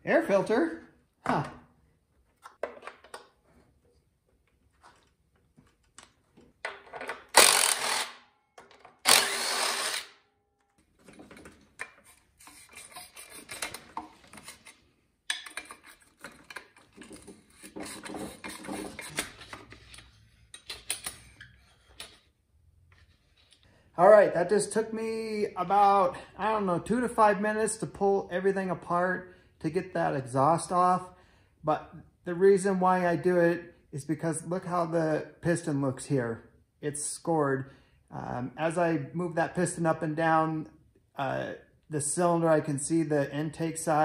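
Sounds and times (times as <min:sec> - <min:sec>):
power tool bursts: 0:07.3 - 0:08.3, 0:09.0 - 0:10.2.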